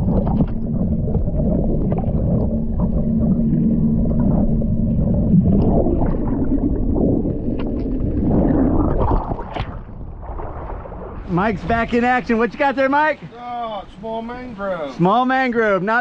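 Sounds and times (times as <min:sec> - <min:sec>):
underwater rumble and gurgling: 0:00.0 - 0:11.8
low steady hum: 0:00.0 - 0:12.7.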